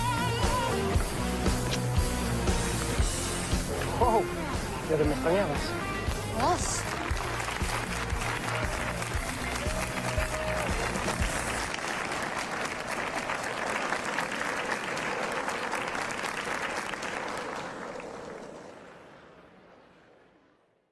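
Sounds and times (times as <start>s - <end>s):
party music: 0.0s - 11.7s
crowd applauding: 0.0s - 19.6s.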